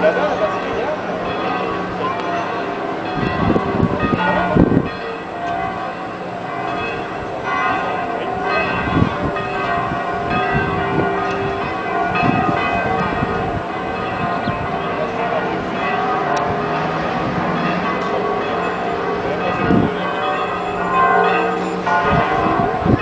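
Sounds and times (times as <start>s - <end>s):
church bells ringing: 0.0s - 23.0s.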